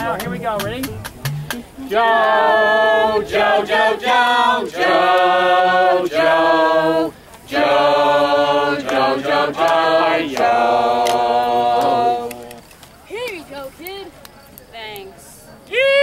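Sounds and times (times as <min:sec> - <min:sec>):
voices singing a cappella: 0:00.0 - 0:12.7.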